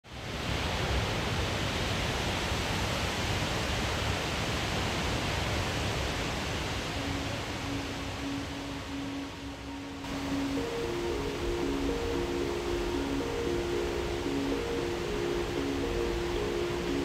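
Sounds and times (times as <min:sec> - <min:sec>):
waterfall rushing: 0:00.1 - 0:17.0
faint musical note: 0:07.0 - 0:17.0.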